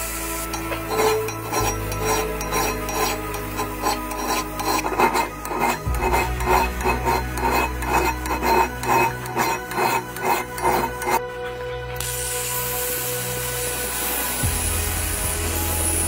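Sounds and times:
rusty iron scrubbed with abrasive: 0.0 - 11.3.

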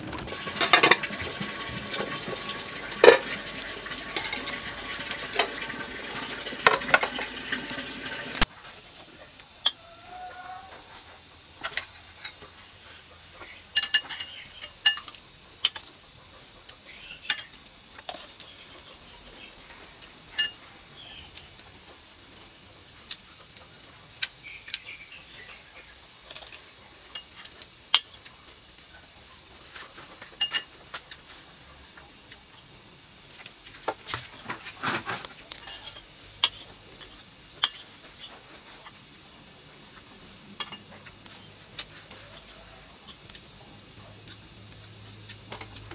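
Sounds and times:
metal pot and lid clatter: 0.0 - 7.6, 13.7 - 15.9, 20.3 - 20.6, 30.4 - 30.7, 34.7 - 36.7
steam venting: 0.0 - 45.9
utensils clinking on dishes: 0.1 - 8.1, 13.4 - 15.9, 17.2 - 18.4, 20.3 - 20.6, 30.2 - 30.8, 34.7 - 39.0, 40.6 - 43.2.

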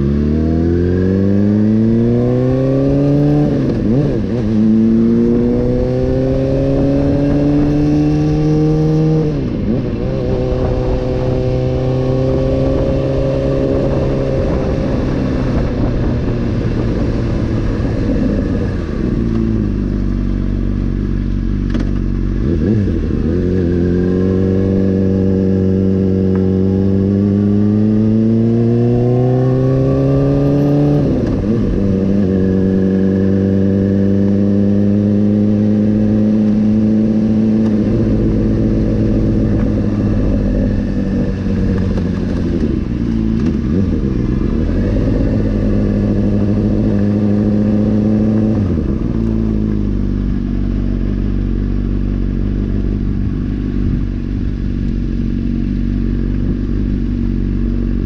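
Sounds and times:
motorcycle engine accelerating: 0.0 - 58.0
wind rush: 1.7 - 20.0, 36.0 - 50.4.

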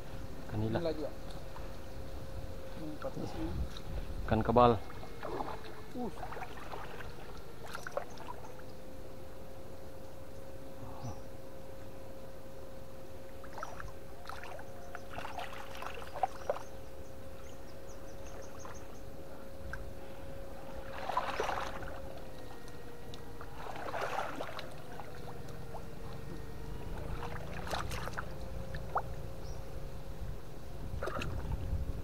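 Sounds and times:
high electrical whine: 0.0 - 32.0
water splashing and sloshing: 4.8 - 8.8, 13.4 - 16.8, 20.5 - 29.3, 30.9 - 31.8.

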